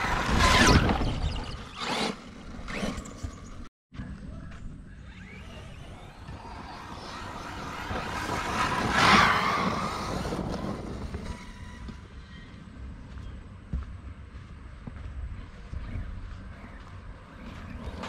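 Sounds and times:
rc truck electric motor whining: 0:00.0 - 0:03.6, 0:05.0 - 0:12.4.

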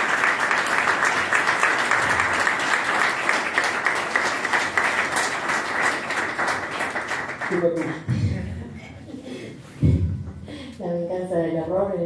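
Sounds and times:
audience applauding: 0:00.0 - 0:08.1.

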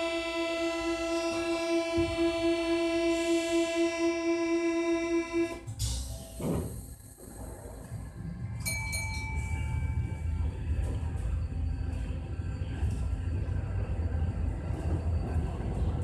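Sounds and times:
train motor whine: 0:00.0 - 0:07.2
low train rumble: 0:00.0 - 0:16.0
train doors thudding shut: 0:05.6 - 0:07.0.

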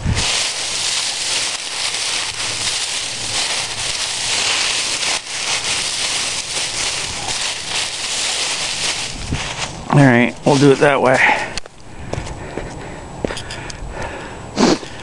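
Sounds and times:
dry leaves crackling and rustling: 0:00.0 - 0:12.0.

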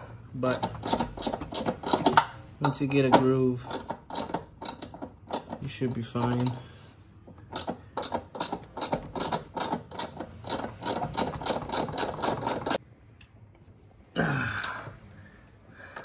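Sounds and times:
ratchet wrench clicking: 0:00.5 - 0:06.6, 0:07.4 - 0:12.8.

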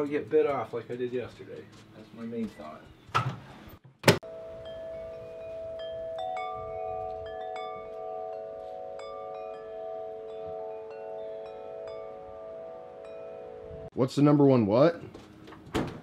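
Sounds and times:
chimes ringing: 0:04.2 - 0:13.9.

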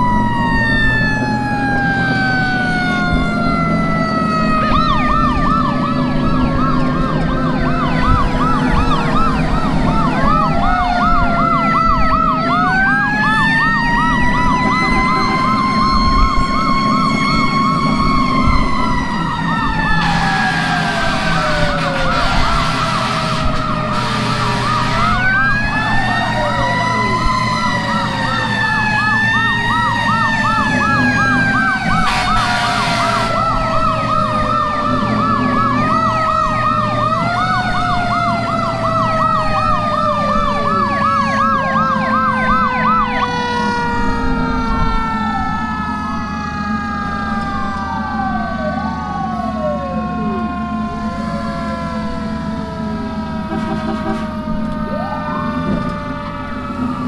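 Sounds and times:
electronic siren warbling: 0:00.0 - 0:57.0
truck engine drone: 0:00.0 - 0:57.0
mechanical sirens winding: 0:15.4 - 0:44.0.

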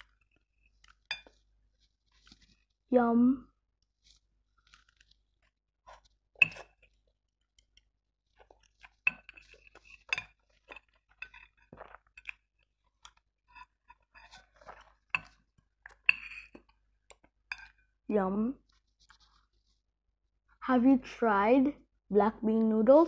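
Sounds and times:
person chewing noodles: 0:00.0 - 0:02.8, 0:03.9 - 0:17.8.

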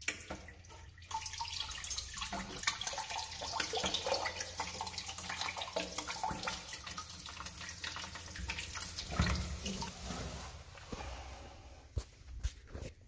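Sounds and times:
water trickling into a bucket: 0:00.0 - 0:10.5.

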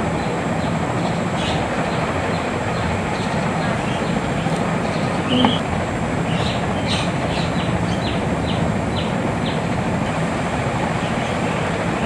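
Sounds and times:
steady background hiss: 0:00.0 - 0:12.0
short high chirps: 0:05.3 - 0:05.6.

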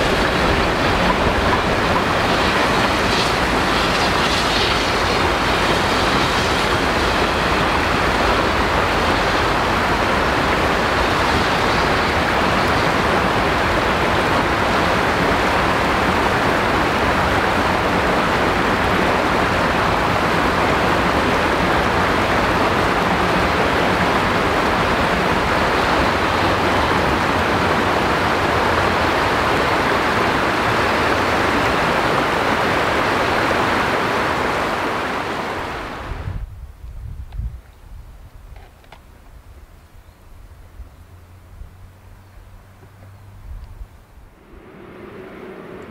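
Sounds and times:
fast-flowing river water: 0:00.0 - 0:36.4.

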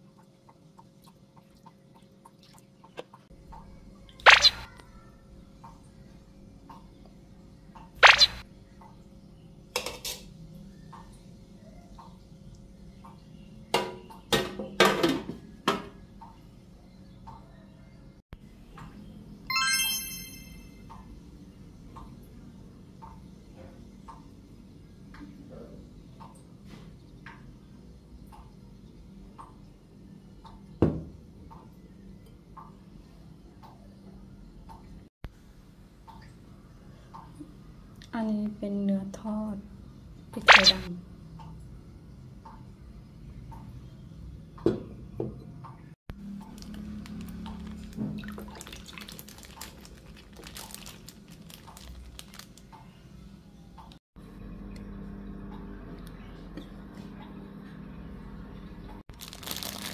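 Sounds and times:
liquid splashing and dripping: 0:04.2 - 0:04.7, 0:07.8 - 0:08.4, 0:40.5 - 0:40.9, 0:47.3 - 0:52.5
plastic bag crinkling: 0:46.6 - 0:52.6, 0:59.1 - 0:59.9.

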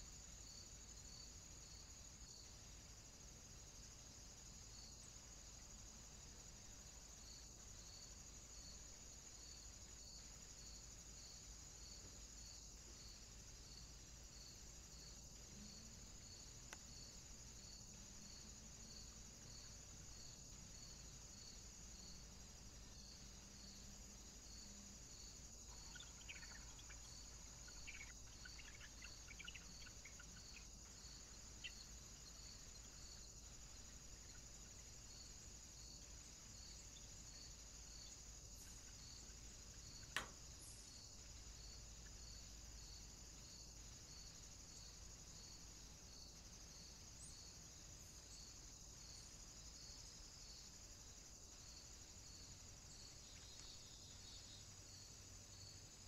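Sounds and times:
faint high-pitched hiss: 0:00.0 - 0:56.0
faint ticks: 0:15.2 - 0:18.2, 0:38.6 - 0:42.2, 0:53.2 - 0:54.1
sharp click: 0:40.1 - 0:40.4.

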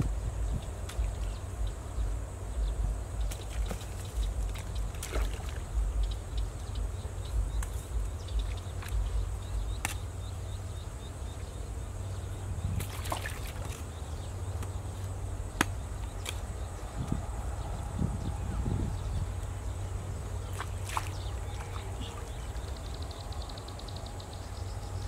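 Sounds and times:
water sloshing and trickling: 0:00.4 - 0:02.0, 0:03.2 - 0:10.6, 0:12.1 - 0:15.3, 0:19.2 - 0:23.4
low rumble: 0:04.1 - 0:09.8, 0:15.2 - 0:20.4.

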